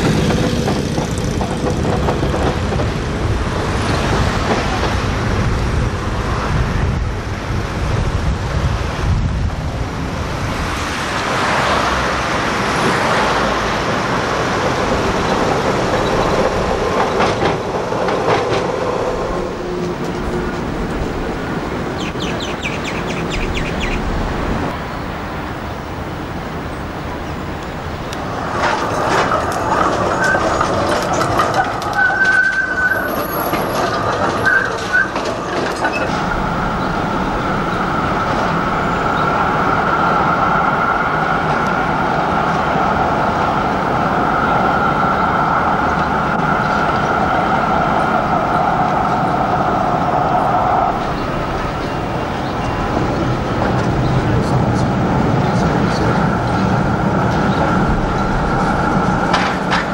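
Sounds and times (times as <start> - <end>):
tram wheels clattering over joints: 0.0 - 8.3, 11.2 - 24.8, 26.7 - 59.9
tram whine: 0.0 - 59.9
high squeal: 31.8 - 35.2.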